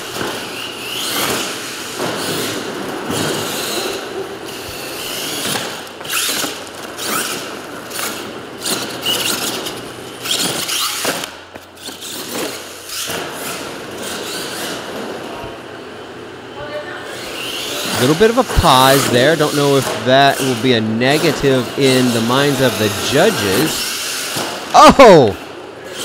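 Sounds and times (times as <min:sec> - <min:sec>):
toy truck electric motor whining: 0:00.0 - 0:15.1, 0:22.1 - 0:24.4.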